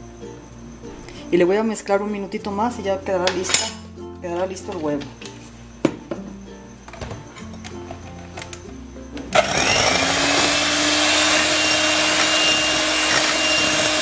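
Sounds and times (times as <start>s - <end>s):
quiet background music: 0.0s - 14.0s
electric hand mixer whirring: 9.3s - 14.0s.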